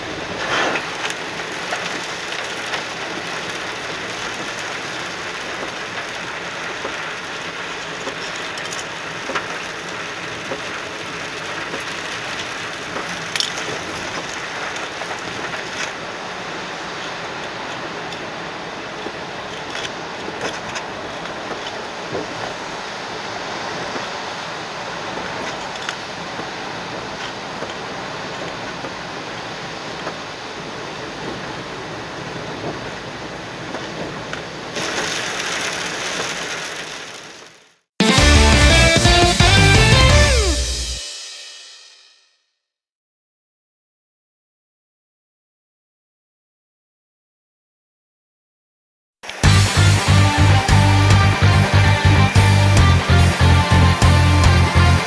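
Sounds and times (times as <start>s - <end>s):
rain and tyre spray inside car: 0.0s - 37.8s.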